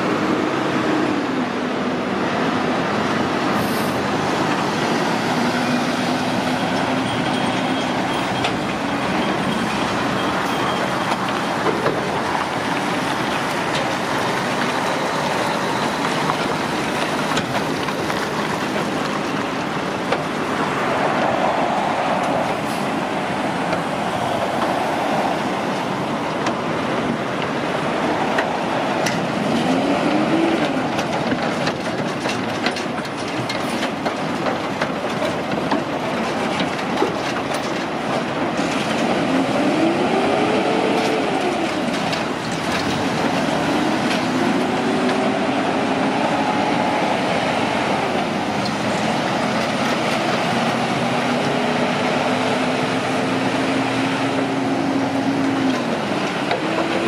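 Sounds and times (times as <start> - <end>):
trucks passing with tyre noise: 0.0 - 57.0
truck engine accelerating: 36.0 - 57.0.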